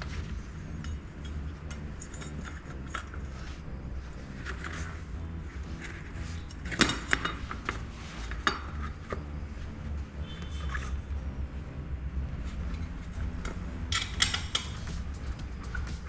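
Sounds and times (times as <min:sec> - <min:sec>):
steady low hum: 0:00.0 - 0:16.0
metallic clinks of bicycle parts: 0:00.7 - 0:03.3, 0:13.9 - 0:14.9.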